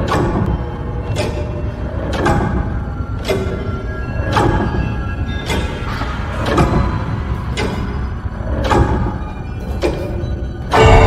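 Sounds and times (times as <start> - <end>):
grandfather clock ticking: 0.0 - 5.8.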